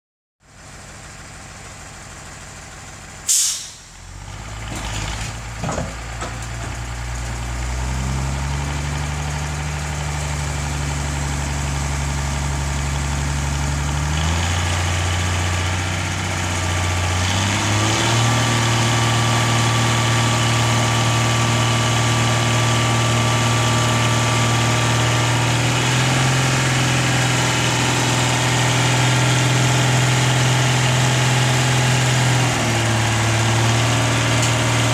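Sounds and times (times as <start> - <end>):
truck engine running: 0.4 - 34.9
air hiss burst: 3.3 - 4.0
bin dragged onto truck: 4.5 - 7.4.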